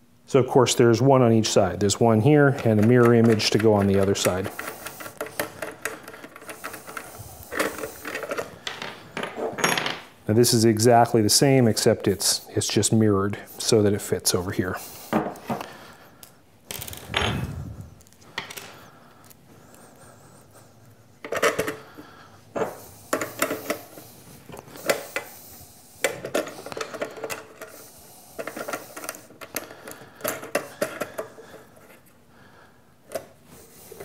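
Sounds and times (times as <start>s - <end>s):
metal tool parts clinking and tapping: 2.5s - 10.0s.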